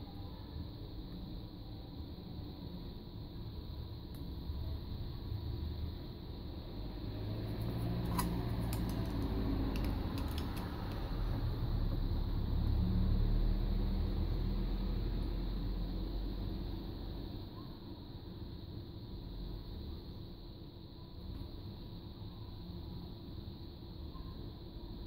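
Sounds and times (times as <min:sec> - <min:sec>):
small plug parts clicking: 0:08.0 - 0:11.2.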